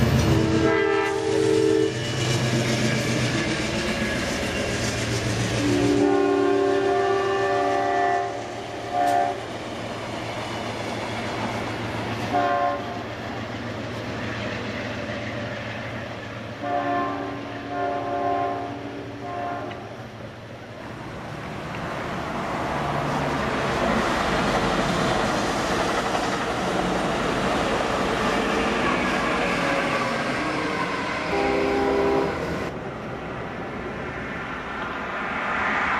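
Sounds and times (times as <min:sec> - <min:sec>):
train rumbling past: 0:00.0 - 0:35.9
train horn blasts: 0:00.3 - 0:02.1, 0:05.6 - 0:09.4, 0:12.3 - 0:13.0, 0:16.6 - 0:20.0, 0:31.2 - 0:32.7.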